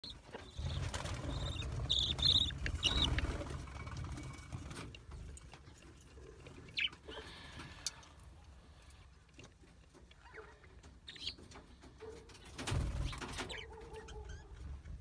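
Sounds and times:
budgerigars chirping: 0:00.0 - 0:03.4, 0:06.7 - 0:07.3, 0:10.2 - 0:11.5, 0:13.0 - 0:14.5.

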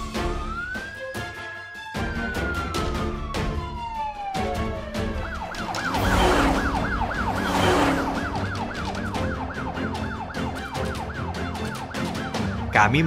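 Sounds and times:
ambulance siren yelping: 0:00.0 - 0:13.0
background music with beat: 0:00.0 - 0:13.0
rushing whoosh: 0:05.8 - 0:09.2.

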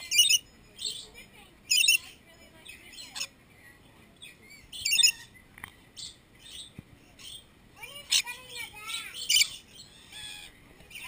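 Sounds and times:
parrots screeching chirps: 0:00.0 - 0:01.0, 0:01.7 - 0:02.1, 0:02.9 - 0:03.3, 0:04.4 - 0:05.4, 0:06.5 - 0:11.0.

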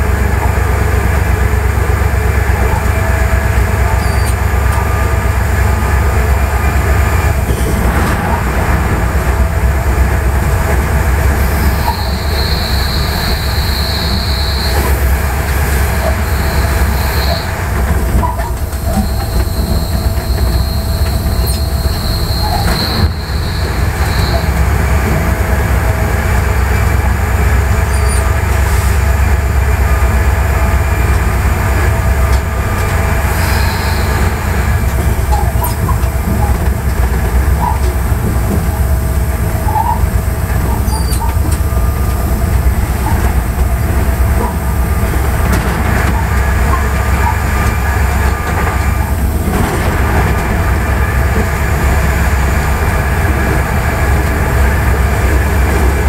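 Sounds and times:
wheels rumbling on rail: 0:00.0 - 0:56.0
faint wheel squeals: 0:03.9 - 0:04.8, 0:11.4 - 0:15.0, 0:16.0 - 0:17.6, 0:18.2 - 0:24.6, 0:27.8 - 0:28.4, 0:39.6 - 0:41.7.

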